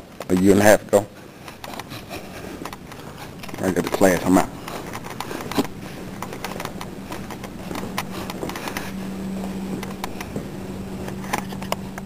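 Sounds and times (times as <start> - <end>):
steady hum: 0.0 - 12.0
footsteps on hard floor: 1.6 - 12.0.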